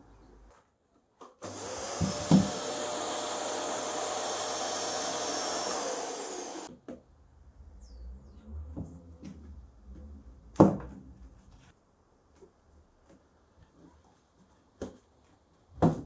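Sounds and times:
vacuum cleaner running: 1.4 - 6.7.

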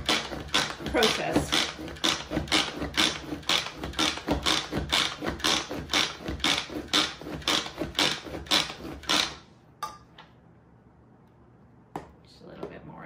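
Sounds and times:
manual food processor pumping: 0.0 - 9.5.

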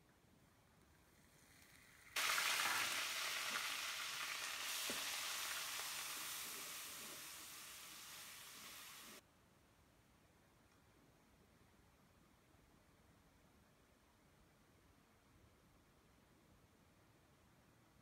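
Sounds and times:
onion sizzling in hot oil: 1.3 - 9.2.

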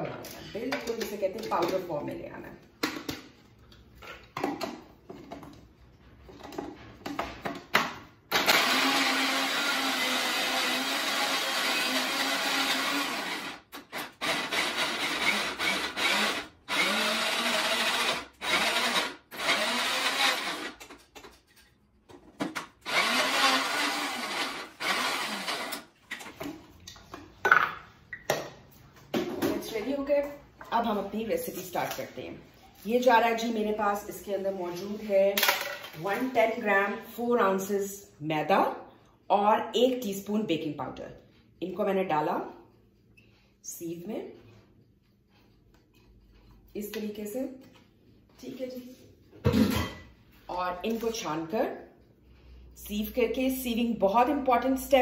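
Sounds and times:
electric chopper motor grinding: 22.8 - 25.8.

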